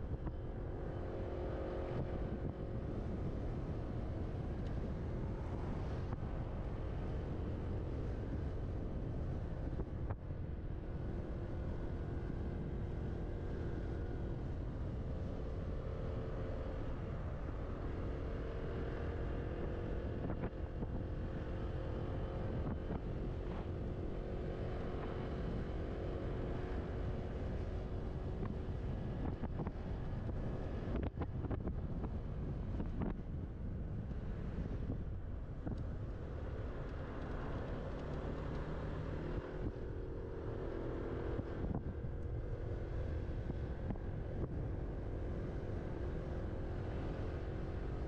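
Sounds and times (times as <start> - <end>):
wind buffeting microphone: 26.6 - 39.8.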